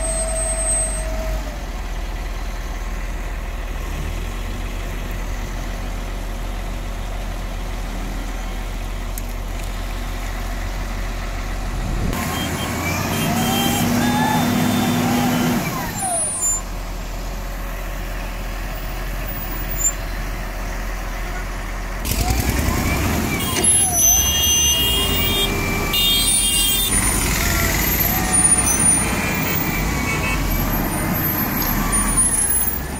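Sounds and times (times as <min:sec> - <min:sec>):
high whistling tones: 0:00.0 - 0:01.3
heavy diesel engines running: 0:00.0 - 0:32.9.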